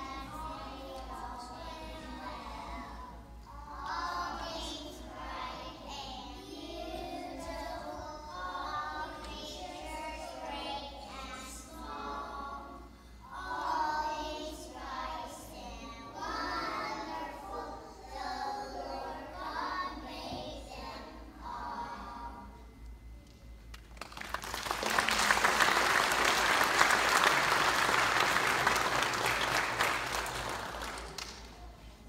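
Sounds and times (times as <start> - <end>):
children's choir singing: 0.0 - 22.8.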